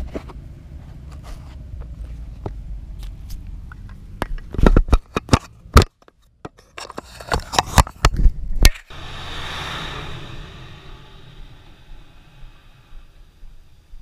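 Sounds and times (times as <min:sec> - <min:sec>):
steady hiss: 0:08.9 - 0:14.0.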